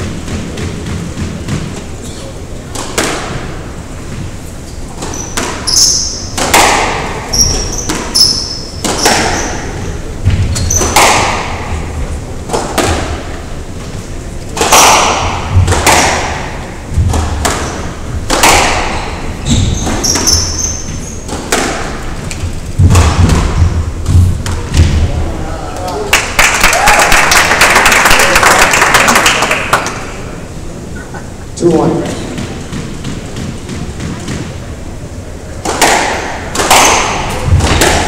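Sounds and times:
squash ball striking rackets and walls: 0.0 - 13.8, 14.4 - 25.3, 31.8 - 38.0
shoes squeaking on wooden floor: 4.0 - 6.3, 7.3 - 11.0, 18.9 - 21.4.

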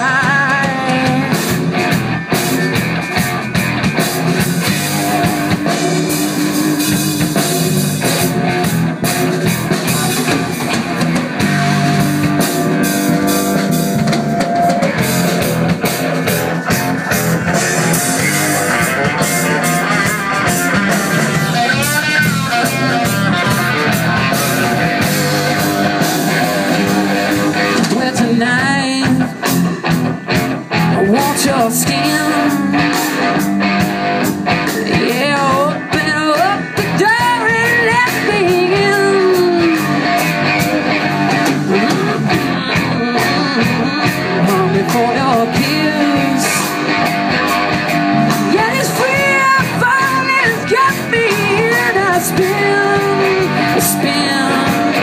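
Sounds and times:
bending lead guitar notes: 0.0 - 55.0
blues-rock band playing: 0.0 - 55.0.

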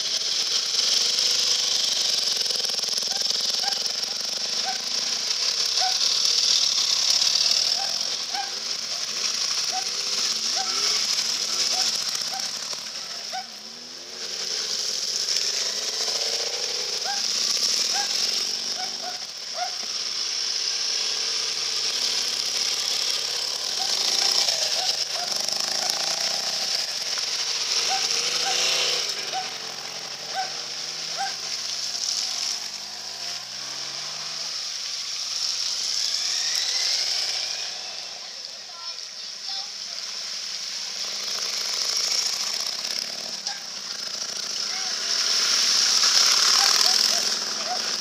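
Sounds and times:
motorcycle engines: 0.0 - 48.0.

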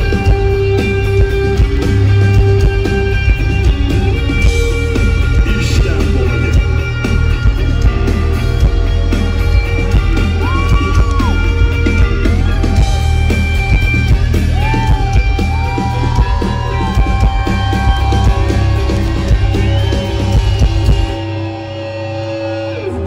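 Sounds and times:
rock band playing live: 0.0 - 23.0
person yelling over music: 10.3 - 11.6, 14.4 - 18.9.

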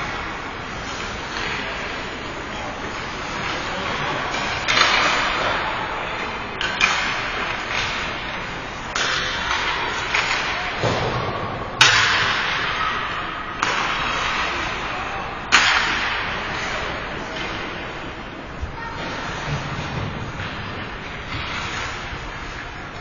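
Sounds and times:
hockey sticks and puck knocking: 2.8 - 5.6, 6.2 - 12.6, 13.6 - 14.8, 15.5 - 16.7.

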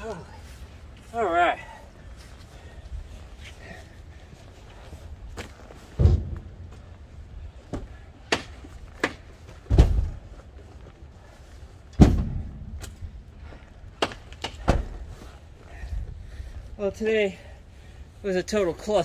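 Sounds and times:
heavy thuds: 5.3 - 10.4, 11.9 - 15.8.

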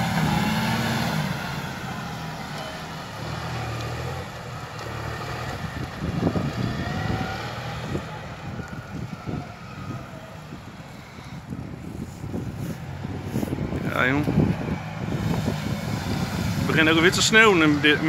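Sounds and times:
tractor engine running: 0.0 - 18.0
wind gusts on microphone: 5.1 - 18.0.

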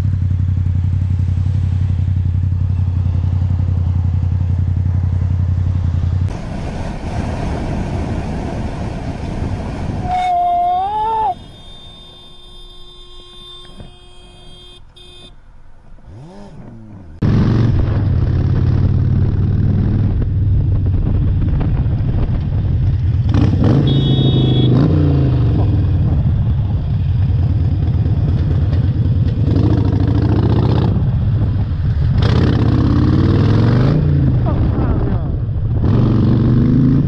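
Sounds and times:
motorcycle engine running: 0.0 - 6.2, 16.2 - 24.7
road and wind noise: 0.0 - 37.0.

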